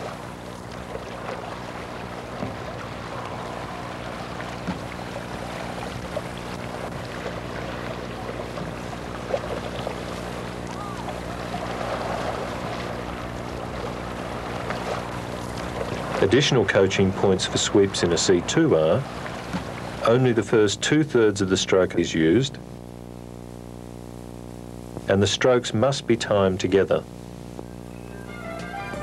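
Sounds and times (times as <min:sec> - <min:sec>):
canoe paddles splashing water: 0:00.0 - 0:22.3
water gurgling: 0:00.0 - 0:22.4
steady low hum: 0:00.0 - 0:29.0.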